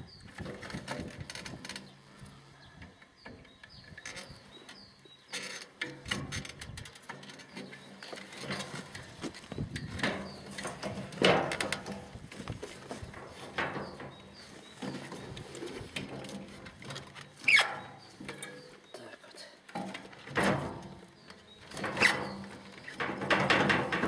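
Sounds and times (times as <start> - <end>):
rustling clatter: 3.7 - 18.7, 19.7 - 24.0.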